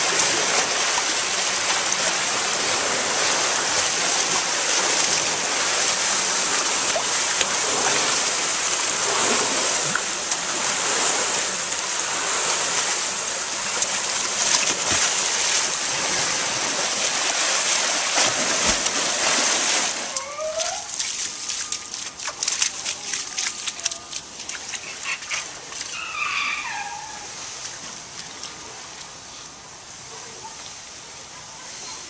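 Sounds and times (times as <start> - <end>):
water rushing and splashing: 0.0 - 32.0
clicks and drips: 20.1 - 26.0
short squeaky calls: 25.0 - 27.3.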